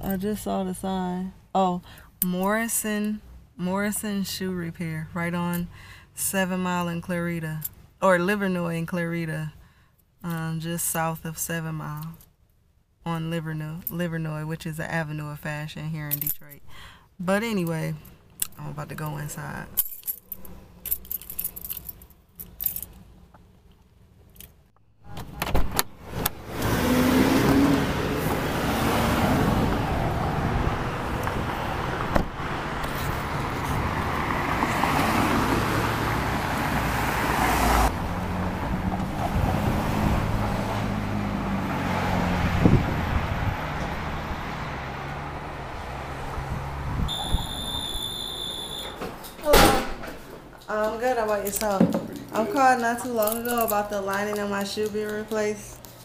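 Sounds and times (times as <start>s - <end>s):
cars passing on city road: 0.0s - 55.9s
keys jangling: 19.8s - 23.0s, 53.1s - 55.3s
short high electronic tone: 47.1s - 49.0s.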